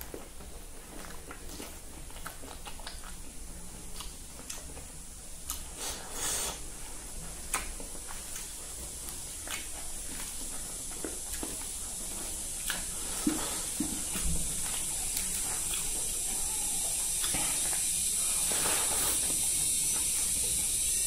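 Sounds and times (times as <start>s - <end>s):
chewing and lip smacking: 0.0s - 21.0s.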